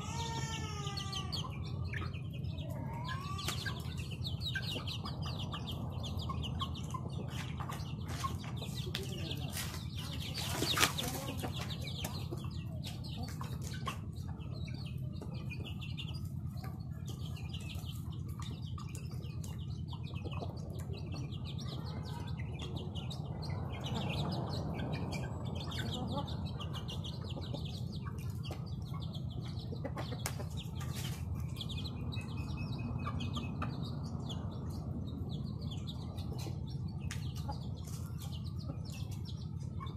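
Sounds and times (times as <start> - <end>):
chicks peeping: 0.0 - 39.9
hens clucking: 0.0 - 39.9
chickens pecking on cardboard: 6.9 - 22.2, 28.0 - 31.5, 36.3 - 39.2.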